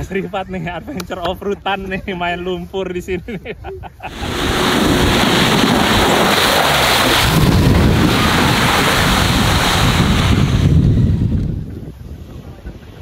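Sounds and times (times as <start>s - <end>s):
wind buffeting microphone: 3.7s - 13.0s
tyres churning mud and water: 4.1s - 11.3s.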